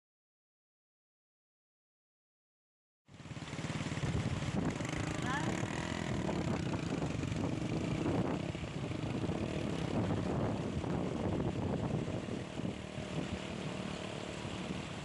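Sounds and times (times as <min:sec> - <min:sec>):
floodwater rushing: 0:03.1 - 0:15.0
wind buffeting microphone: 0:03.6 - 0:15.0.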